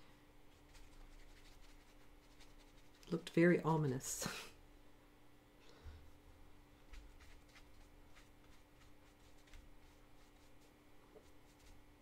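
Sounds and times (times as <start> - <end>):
faint steady hum: 0.0 - 12.0
brush strokes on paper: 0.5 - 3.2, 6.8 - 11.8.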